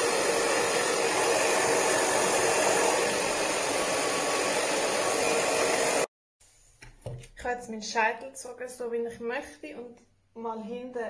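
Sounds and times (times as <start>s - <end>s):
hair dryer running: 0.0s - 6.1s.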